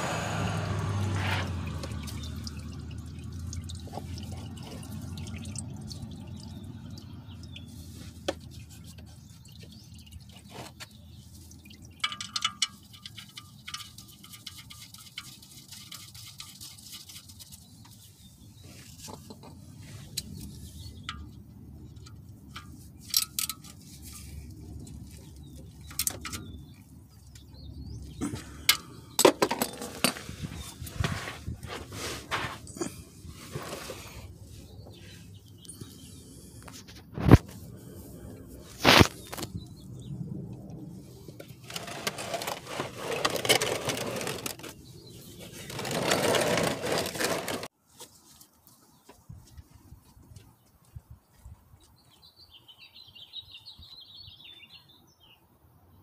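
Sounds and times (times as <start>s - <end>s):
oil pouring and dripping: 0.7s - 18.0s.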